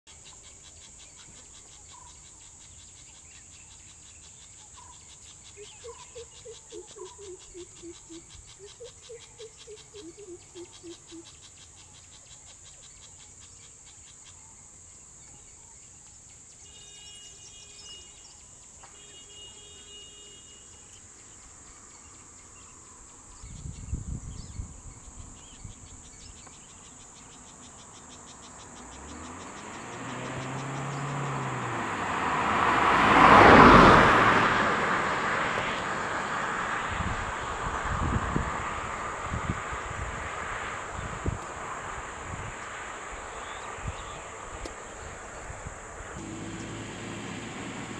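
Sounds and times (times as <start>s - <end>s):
insects buzzing: 0.1s - 47.9s
vehicle approaching: 5.4s - 12.1s, 26.8s - 47.9s
bird hooting: 5.7s - 11.3s.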